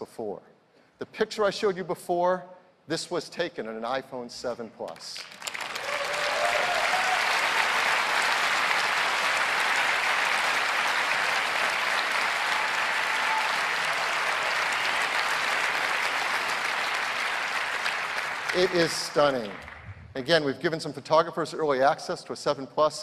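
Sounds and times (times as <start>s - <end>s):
audience applauding: 5.2s - 20.0s
audience cheer: 5.5s - 19.8s.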